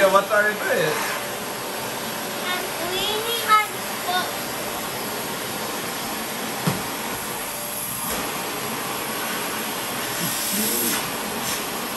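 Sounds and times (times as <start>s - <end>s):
vacuum cleaner running: 0.0s - 11.9s.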